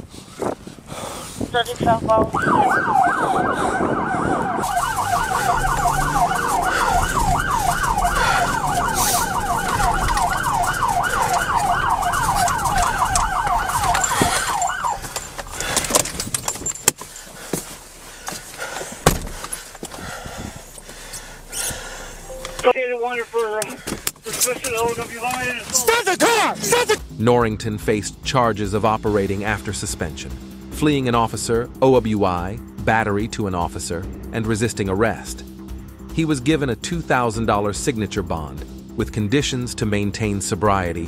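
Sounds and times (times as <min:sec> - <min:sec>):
running vehicle noise: 0:00.0 - 0:27.1
police siren yelping: 0:02.2 - 0:15.8.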